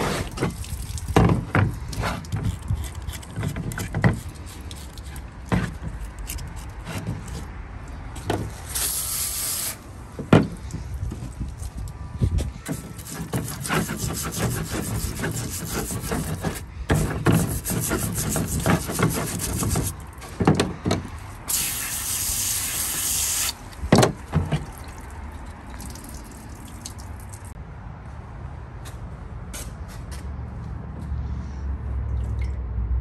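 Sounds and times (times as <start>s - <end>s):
wire brush scrubbing metal: 12.7s - 20.0s.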